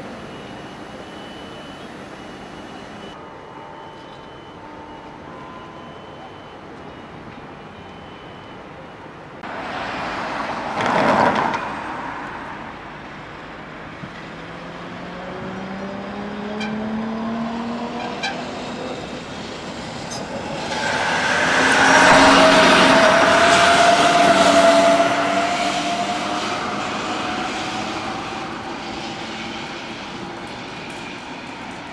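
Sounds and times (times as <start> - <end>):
road vehicle rushing past: 9.4 - 31.9
tram traction drive whining: 18.0 - 31.9.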